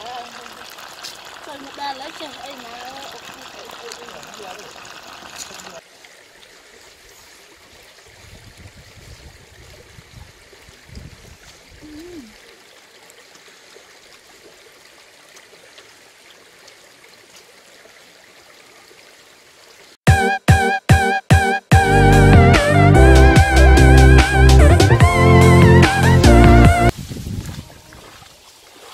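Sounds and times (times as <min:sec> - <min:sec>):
stream flowing over rocks: 0:00.0 - 0:20.0, 0:27.5 - 0:28.9
loud guitar music: 0:20.1 - 0:26.9.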